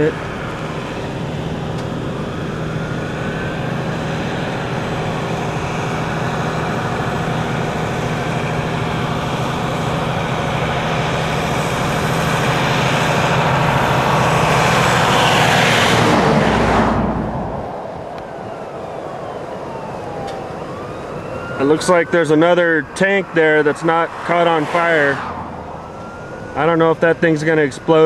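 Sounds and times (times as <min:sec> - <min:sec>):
vehicle engine running: 0:00.0 - 0:28.0
dense loud roar: 0:11.7 - 0:26.9.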